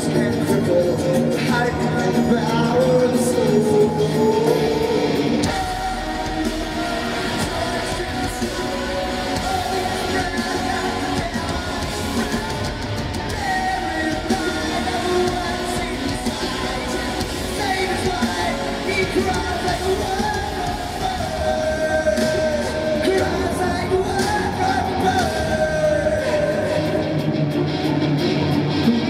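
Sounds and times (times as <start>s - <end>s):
singer singing into microphone: 0.0s - 28.5s
electric guitar: 0.0s - 29.0s
live rock band playing: 0.0s - 29.0s.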